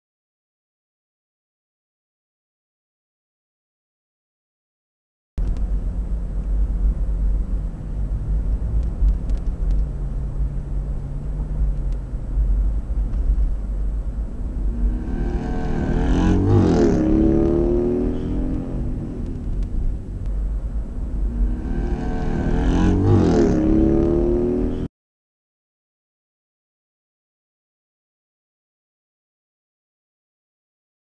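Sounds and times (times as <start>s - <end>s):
car interior road rumble: 5.4s - 24.9s
vehicle passing: 7.2s - 24.9s.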